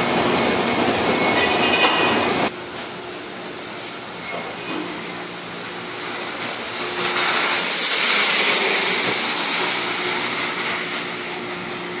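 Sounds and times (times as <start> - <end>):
broad rushing noise: 5.1 - 12.0.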